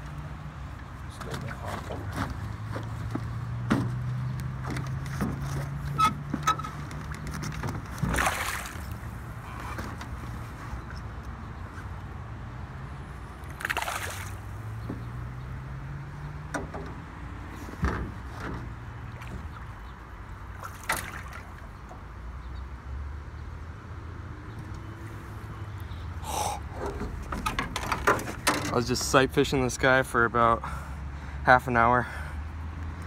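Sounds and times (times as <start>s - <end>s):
fish splashing in water: 8.0s - 9.1s, 13.5s - 14.5s, 20.5s - 21.8s.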